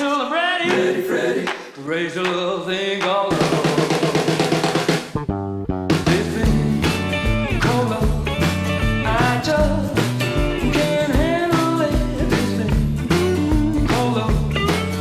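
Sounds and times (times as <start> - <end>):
drums: 0.0 - 15.0
walking bass line: 5.2 - 15.0.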